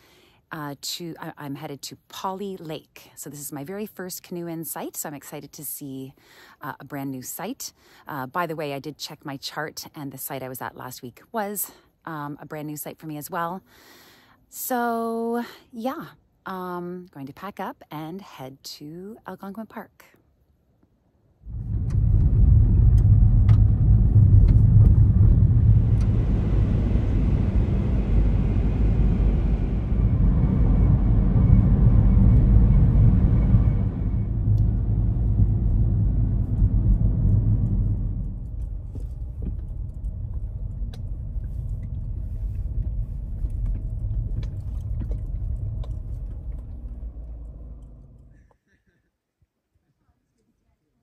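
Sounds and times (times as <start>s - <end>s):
car tyre and road noise: 21.5s - 48.3s.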